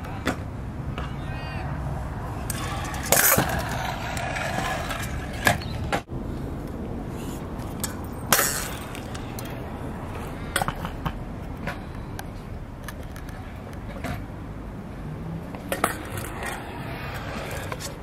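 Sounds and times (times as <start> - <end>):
scooter wheels rolling on concrete: 0.0 - 14.3, 15.2 - 18.0
scooter deck clacking on concrete: 2.4 - 6.1, 7.6 - 9.6, 10.5 - 14.2, 15.5 - 18.0.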